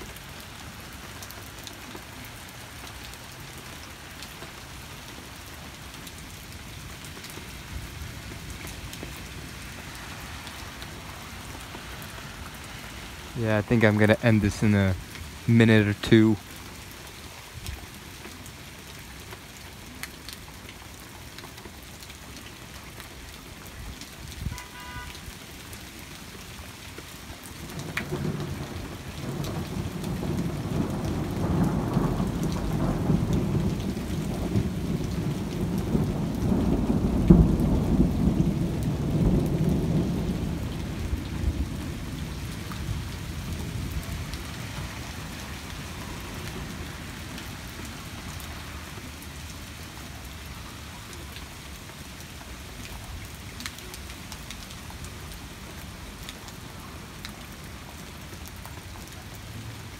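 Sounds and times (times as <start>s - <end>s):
steady rain: 0.0s - 59.9s
rolling thunder: 27.8s - 44.4s.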